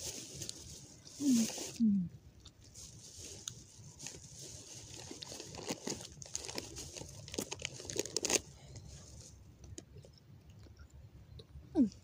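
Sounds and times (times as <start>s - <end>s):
crinkling and rustling: 0.0s - 1.8s, 2.4s - 10.1s.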